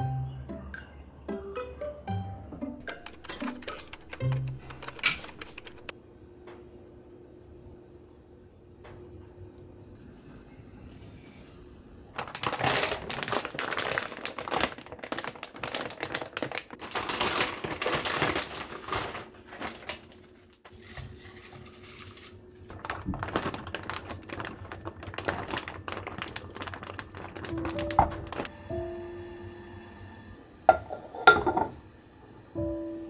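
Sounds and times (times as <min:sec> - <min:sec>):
plastic pouch crinkling: 0:02.8 - 0:05.9, 0:12.2 - 0:20.9, 0:21.7 - 0:28.5.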